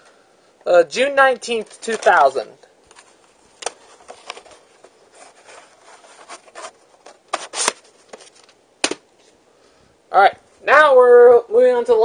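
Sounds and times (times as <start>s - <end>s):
plastic cassette rubbing on carpet: 2.9s - 8.5s.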